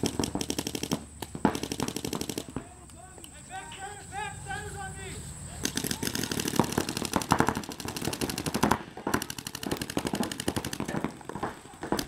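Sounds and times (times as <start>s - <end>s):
paintball markers firing rapidly: 0.0s - 2.8s, 5.6s - 12.0s.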